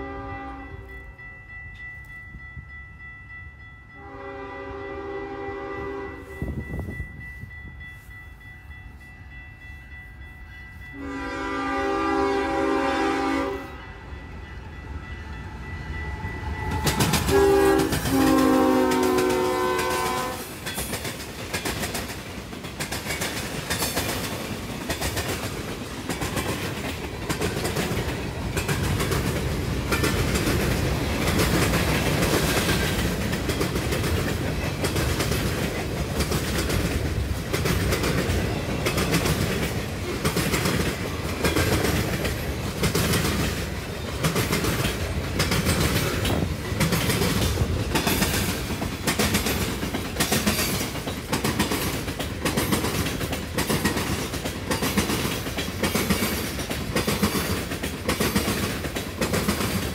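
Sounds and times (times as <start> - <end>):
locomotive horn blasts: 0.0 - 1.0, 4.0 - 6.6, 11.0 - 14.0, 17.2 - 20.5
wheels clacking over rail joints: 16.6 - 59.9.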